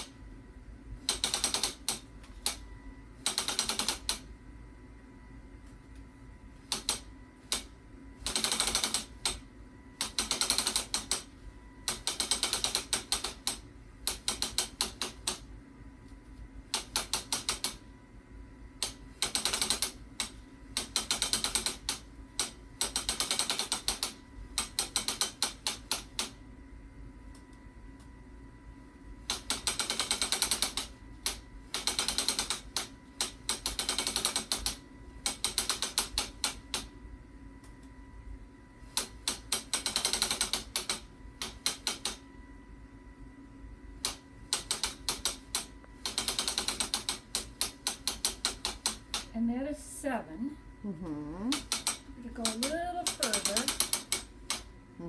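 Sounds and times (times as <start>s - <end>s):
loom ratchet clicking: 1.1s - 2.6s, 3.2s - 4.2s, 6.7s - 9.4s, 10.0s - 11.3s, 11.9s - 15.4s, 16.7s - 17.8s, 18.8s - 26.4s, 29.3s - 36.9s, 38.9s - 42.2s, 44.0s - 49.3s, 51.5s - 54.7s.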